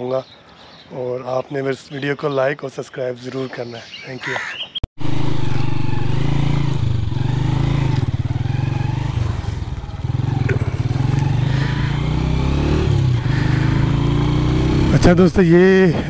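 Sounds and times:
motorcycle engine accelerating: 5.0 - 16.0.

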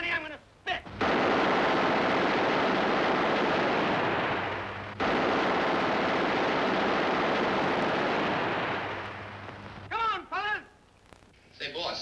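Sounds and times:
submachine gun firing bursts: 1.0 - 9.5.

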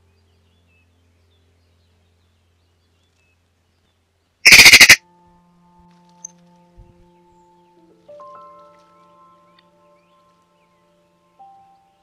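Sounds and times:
magpie rattling chatter: 4.4 - 5.0
faint high bird chirps: 4.5 - 5.0.

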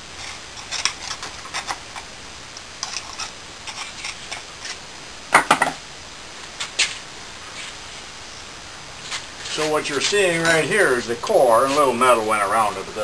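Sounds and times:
hard metal knocks: 5.3 - 5.8.

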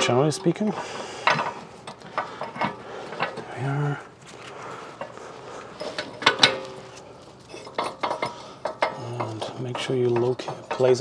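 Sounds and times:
tools clicking and clinking: 0.0 - 3.5, 5.8 - 11.0.

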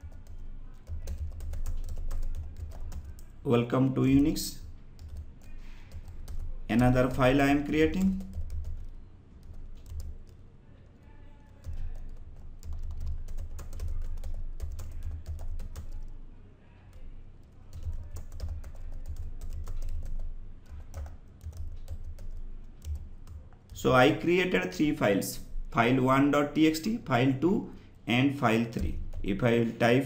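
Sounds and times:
typing on computer keyboard: 0.0 - 3.3, 7.8 - 10.4, 11.6 - 16.2, 17.4 - 23.4.

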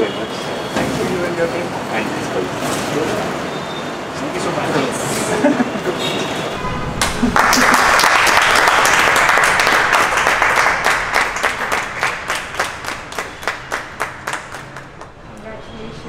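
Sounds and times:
people clapping: 6.9 - 15.5.

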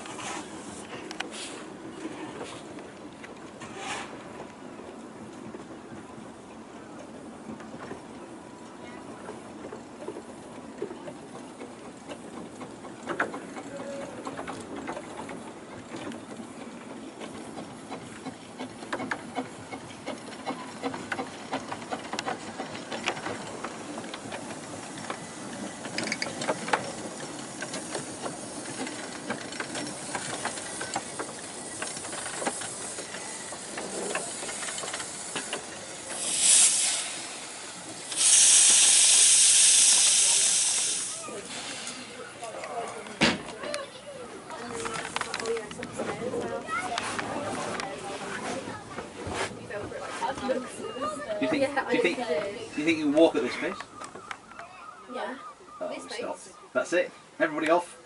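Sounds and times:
steam locomotive rumbling: 0.0 - 54.5
steam hissing: 18.6 - 42.4.

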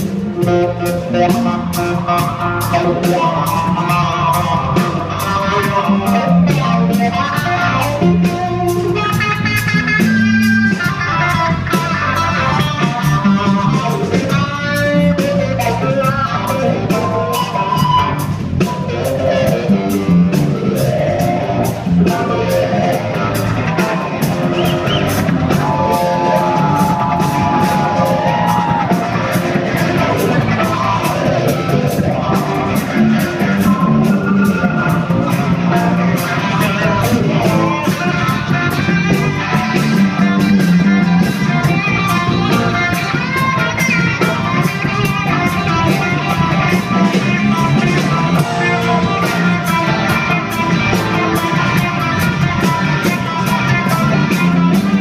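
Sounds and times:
electric guitar: 0.0 - 55.0
live rock band playing: 0.0 - 55.0.

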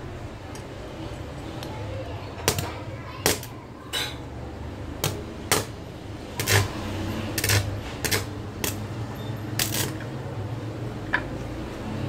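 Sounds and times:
welding arc sputtering: 2.5 - 3.5, 5.0 - 9.0, 9.6 - 10.1.

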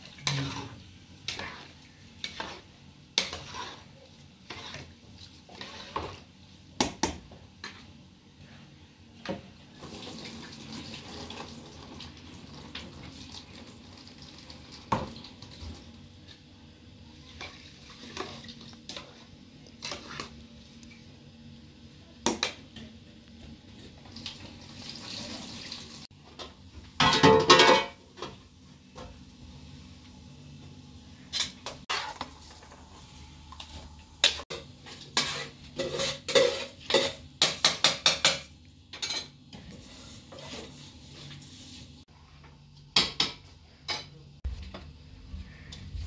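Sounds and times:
dishes and cutlery clattering: 26.4 - 28.4, 35.2 - 39.4.

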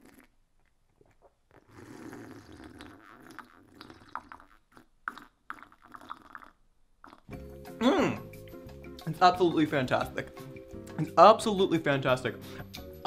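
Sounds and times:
person gulping smoothie: 0.0 - 9.0
lip and throat clicks: 0.0 - 9.2.

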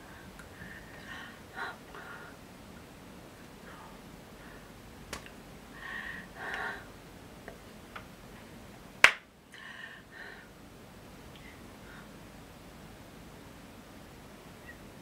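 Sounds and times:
faint hand clicks: 5.1 - 5.4
sharp loud hand slap: 9.0 - 9.3.

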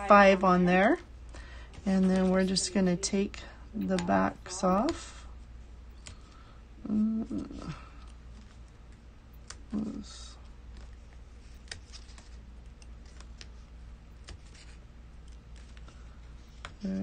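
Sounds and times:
paper rustling: 1.5 - 3.0, 10.7 - 17.0.

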